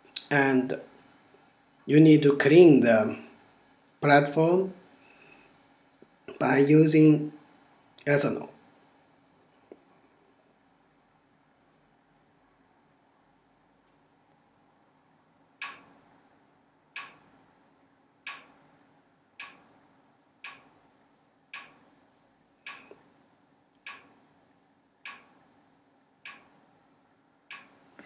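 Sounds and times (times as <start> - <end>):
regular sharp ticking: 15.6 - 16.2, 16.9 - 17.5, 18.1 - 22.0, 22.6 - 26.8, 27.4 - 28.0.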